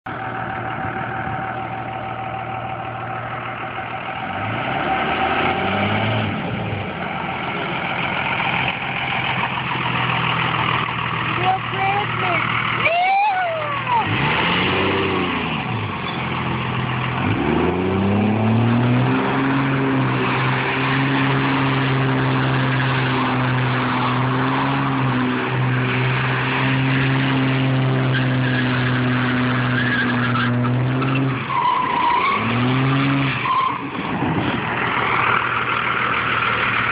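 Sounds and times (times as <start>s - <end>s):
diesel engine revving: 0.0s - 36.9s
tyres spinning and squealing: 0.1s - 36.9s.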